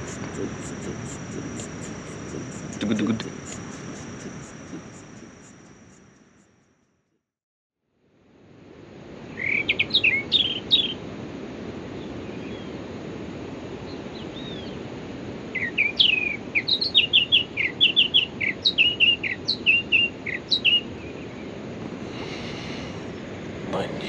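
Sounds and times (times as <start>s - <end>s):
low background rush: 0.0s - 6.2s.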